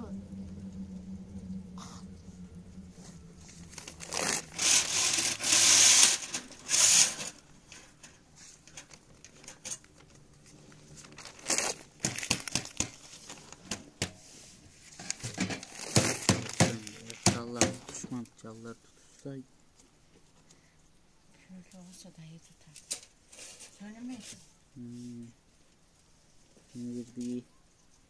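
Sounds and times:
brushwood and paper rustling: 0:03.6 - 0:18.2, 0:22.6 - 0:24.6
sharp snaps and crackles: 0:03.7 - 0:14.2, 0:14.9 - 0:18.4.

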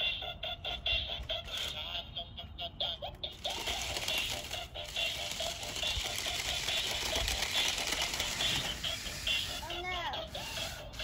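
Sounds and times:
electric motors whirring: 0:03.4 - 0:11.0.

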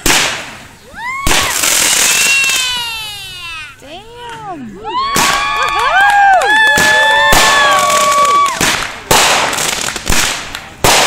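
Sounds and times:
firework bangs: 0:00.0 - 0:03.4, 0:05.0 - 0:11.0
firework crackling: 0:00.0 - 0:11.0
people oohing: 0:00.8 - 0:03.6, 0:04.8 - 0:08.6.

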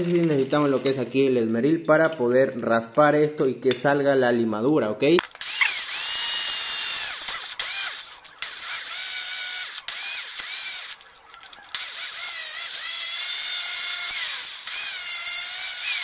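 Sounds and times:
angle grinder grinding steel: 0:05.2 - 0:16.0.

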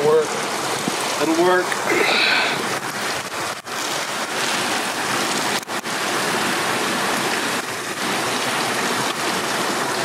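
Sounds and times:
stream water rushing over rocks: 0:00.0 - 0:10.0.

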